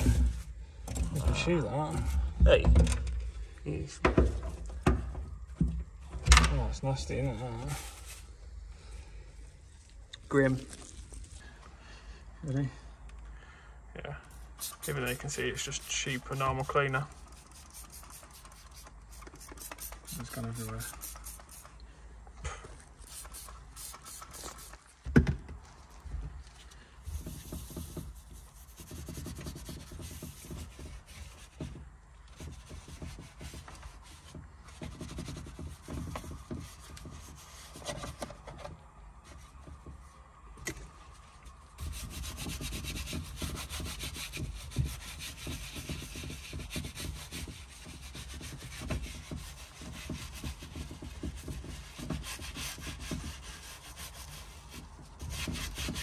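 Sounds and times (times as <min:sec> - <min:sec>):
brush scrubbing steering wheel: 0:00.0 - 0:02.1, 0:06.8 - 0:08.6, 0:14.3 - 0:21.8, 0:22.8 - 0:25.0, 0:25.6 - 0:38.4, 0:39.1 - 0:40.3, 0:40.9 - 0:56.0.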